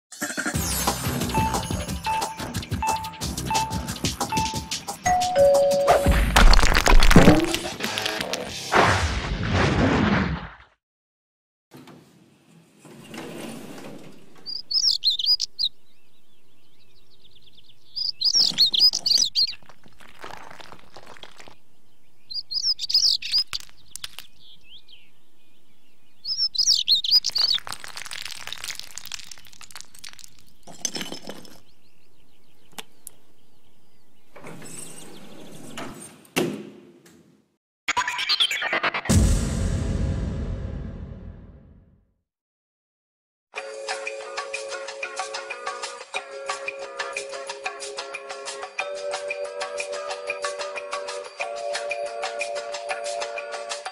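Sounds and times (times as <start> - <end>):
elevator door sliding: 12.8 - 14.7, 34.4 - 36.1
small birds chirping: 14.4 - 35.9.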